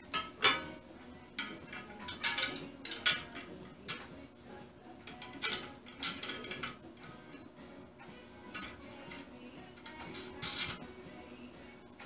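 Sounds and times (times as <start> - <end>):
metal parts clinking together: 1.4 - 4.1, 5.1 - 7.6, 9.8 - 10.9.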